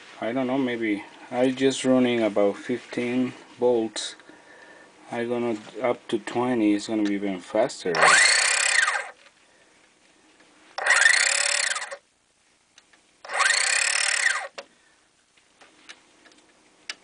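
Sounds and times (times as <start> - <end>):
gearmotor whine: 8.0 - 9.2, 10.8 - 12.0, 13.2 - 14.6.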